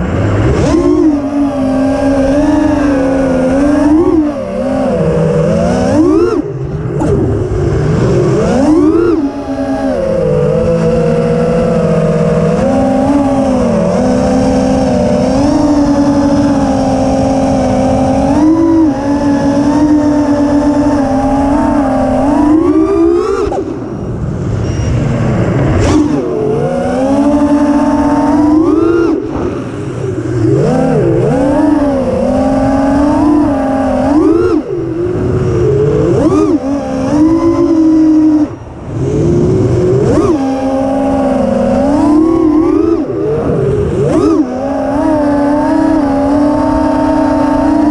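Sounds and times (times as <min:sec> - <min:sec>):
quadcopter motors whining: 0:00.0 - 0:47.9
rough rushing noise: 0:20.8 - 0:41.6.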